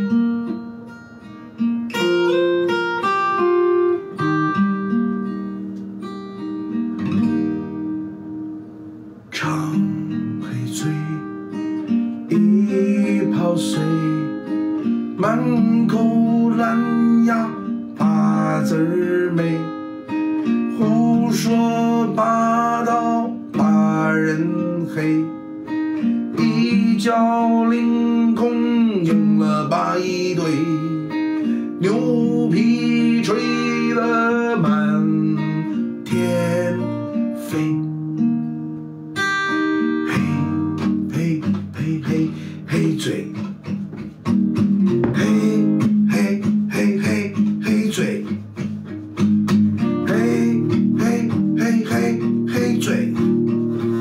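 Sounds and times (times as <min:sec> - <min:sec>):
acoustic guitar strumming: 0:00.0 - 0:54.0
man singing: 0:09.3 - 0:11.6, 0:12.3 - 0:19.8, 0:20.4 - 0:25.4, 0:26.0 - 0:38.0, 0:40.0 - 0:43.6, 0:45.0 - 0:48.8, 0:49.8 - 0:54.0.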